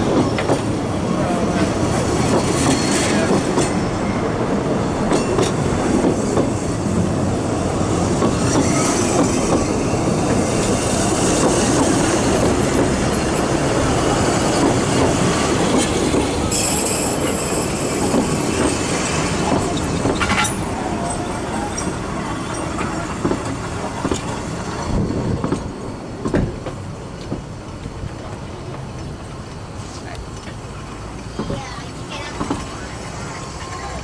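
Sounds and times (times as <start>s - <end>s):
train wheels rumbling on rails: 0.0s - 34.0s
high wheel squeal: 8.3s - 11.0s
clicking over rail joints: 18.0s - 32.9s.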